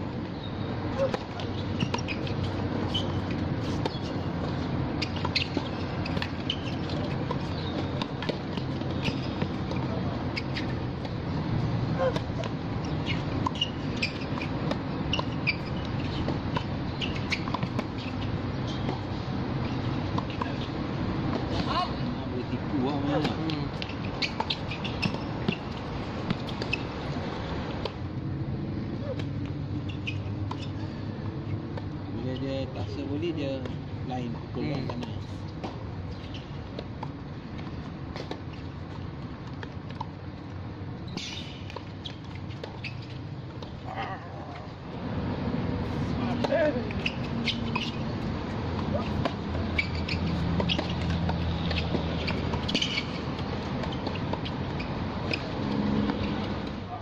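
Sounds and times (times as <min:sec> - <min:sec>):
shoes squeaking on court: 0:00.1 - 0:28.1, 0:28.9 - 0:57.0
shoe scuff on court: 0:46.2 - 0:48.2, 0:48.8 - 0:56.8
racket hitting ball: 0:46.3 - 0:56.8.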